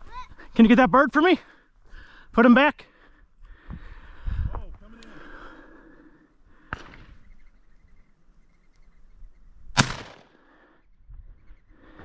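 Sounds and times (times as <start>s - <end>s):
faint sharp crack: 6.6s - 7.2s
shotgun shot: 9.8s - 10.4s.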